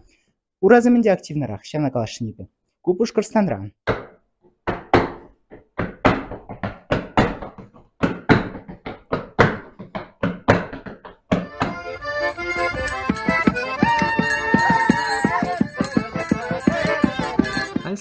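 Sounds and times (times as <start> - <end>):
boots stamping on tiled floor: 3.9 - 18.0
accordion folk-dance music: 11.3 - 18.0.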